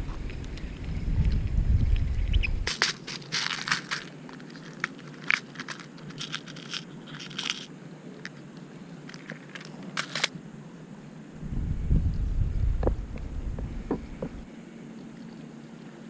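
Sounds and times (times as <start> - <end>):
plastic tackle box clicks and rattles: 2.7 - 8.4, 9.1 - 10.3.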